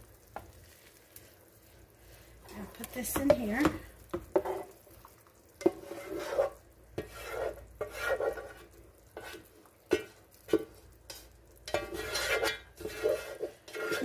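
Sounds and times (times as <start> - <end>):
spatula scraping metal pan: 2.5 - 4.8, 5.6 - 14.0.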